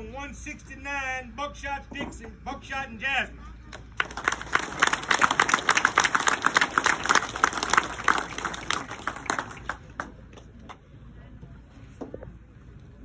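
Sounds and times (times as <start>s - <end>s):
crowd clapping: 3.7s - 10.8s.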